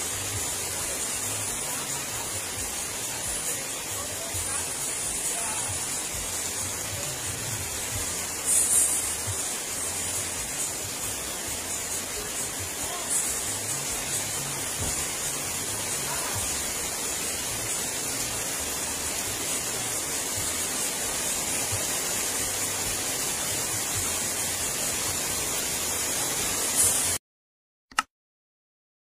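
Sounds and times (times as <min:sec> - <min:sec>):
rain falling on water: 0:00.0 - 0:27.2
short click: 0:27.9 - 0:28.1.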